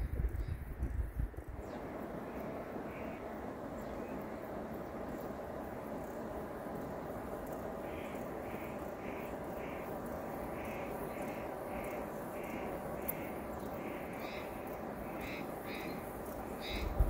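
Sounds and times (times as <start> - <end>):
steady background hiss: 0.0 - 17.0
bird calling: 7.8 - 17.0.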